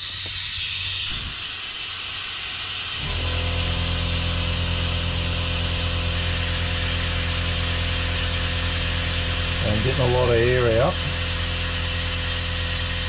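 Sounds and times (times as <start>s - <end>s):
air-powered bleeder hissing: 0.0s - 13.0s
steady low hum: 3.0s - 13.0s.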